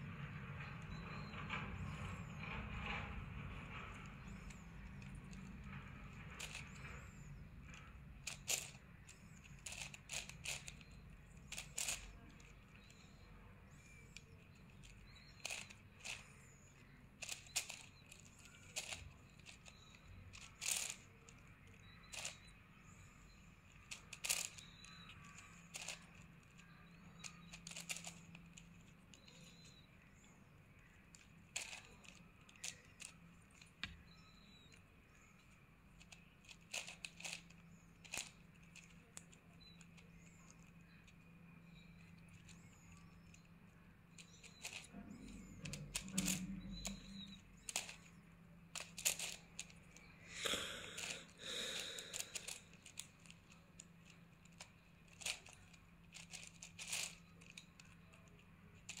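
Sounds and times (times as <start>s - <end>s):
puzzle cube layers clicking: 4.2s - 7.0s, 8.2s - 13.1s, 13.9s - 16.4s, 17.2s - 22.5s, 23.7s - 29.8s, 31.2s - 33.7s, 36.0s - 39.3s, 44.2s - 53.4s, 54.5s - 57.6s.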